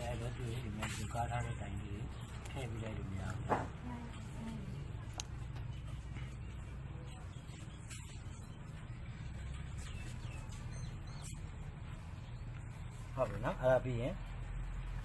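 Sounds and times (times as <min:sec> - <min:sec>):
low background hum: 0:00.0 - 0:15.0.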